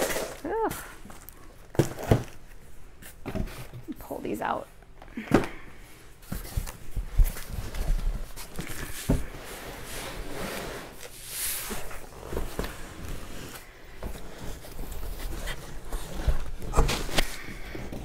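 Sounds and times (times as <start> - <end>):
cardboard rustling and sliding: 6.2 - 18.0.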